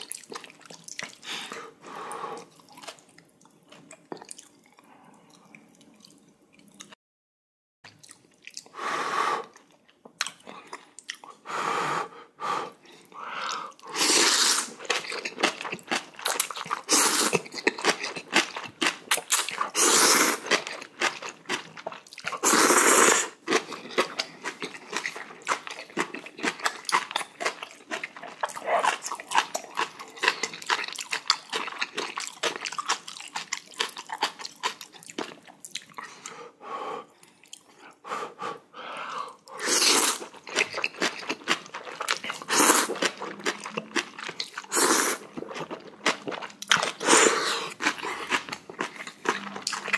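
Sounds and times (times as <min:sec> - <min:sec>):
wet chewing: 0:00.0 - 0:01.7, 0:02.4 - 0:07.0, 0:13.0 - 0:36.4, 0:39.4 - 0:49.9
slurping noodles: 0:13.4 - 0:15.7, 0:16.3 - 0:21.2, 0:22.3 - 0:24.6, 0:39.5 - 0:43.7, 0:44.5 - 0:49.9.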